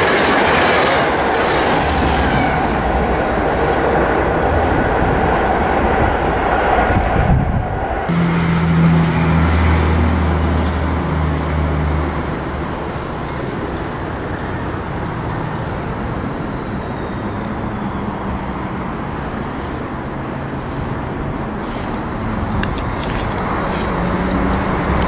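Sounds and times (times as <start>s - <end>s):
road traffic rumble: 0.0s - 25.0s
low hum: 8.0s - 13.2s.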